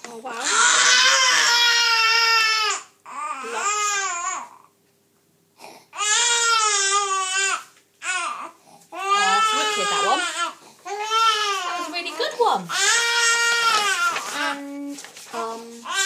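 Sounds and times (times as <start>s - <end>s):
baby crying: 0.4s - 4.7s, 5.9s - 12.0s, 12.7s - 14.4s.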